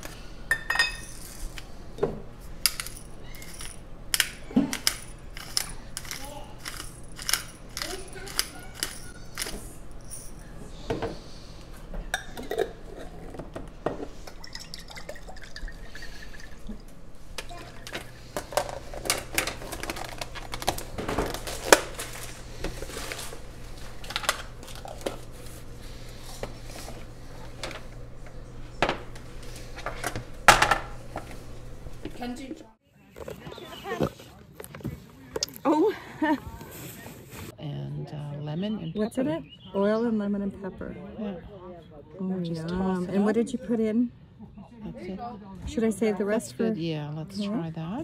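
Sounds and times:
pepper mill grinding: 0.9s - 1.7s, 2.4s - 10.7s, 17.4s - 28.1s
plastic containers clattering: 17.4s - 28.1s.

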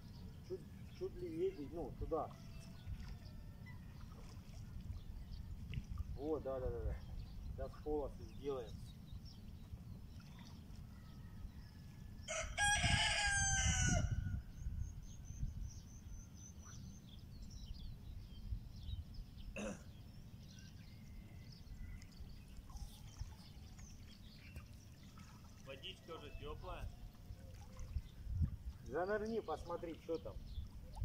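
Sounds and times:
rooster crowing: 12.2s - 14.3s.

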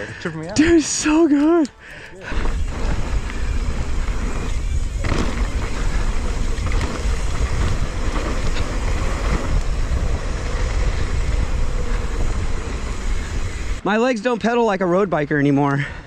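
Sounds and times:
bike rattling: 0.0s - 13.8s
bike tyre rumble: 0.0s - 13.9s
wind buffeting microphone: 2.2s - 13.8s.

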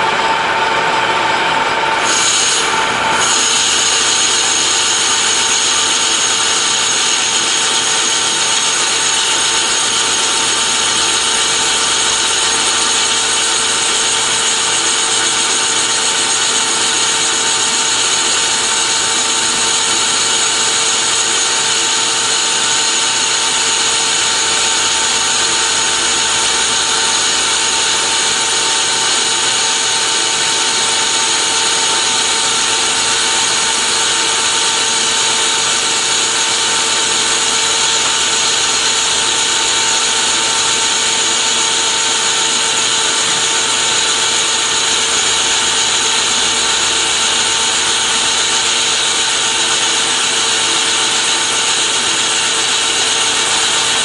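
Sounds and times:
lathe tool cutting metal: 0.0s - 54.0s
metal lathe whirring and whining: 0.0s - 54.0s.

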